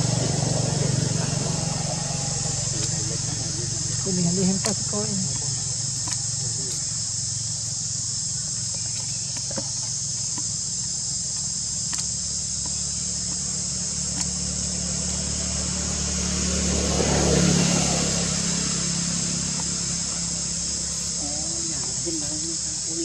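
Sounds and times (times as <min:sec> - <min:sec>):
vehicle passing: 0:00.0 - 0:07.0, 0:14.4 - 0:23.0
high-pitched insect chorus: 0:00.0 - 0:23.0
low engine hum: 0:00.0 - 0:23.0.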